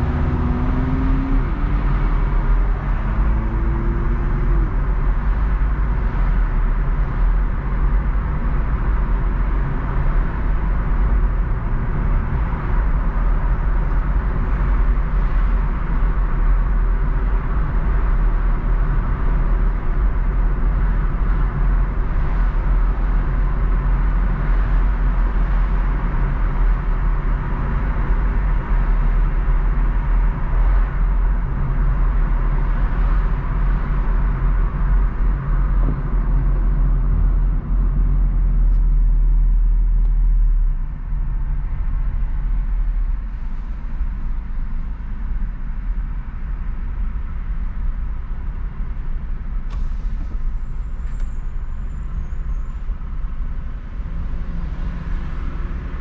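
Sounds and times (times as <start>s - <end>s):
car engine and road rumble: 0.0s - 56.0s.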